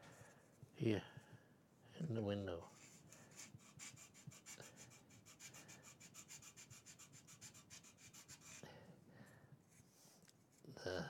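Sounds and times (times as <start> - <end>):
file rasping on thin wood: 2.8 - 8.6.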